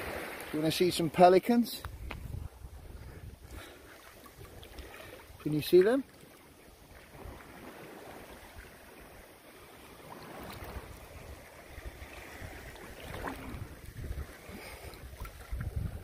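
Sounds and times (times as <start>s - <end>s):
seawater lapping and sloshing: 0.0s - 1.3s, 1.9s - 16.0s
wind buffeting microphone: 1.8s - 5.4s, 10.2s - 16.0s.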